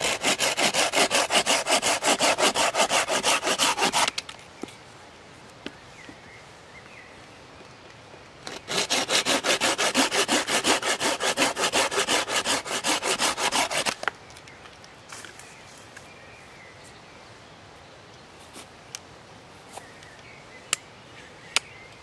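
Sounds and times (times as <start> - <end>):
hand saw cutting branch: 0.0 - 4.2, 8.5 - 14.1.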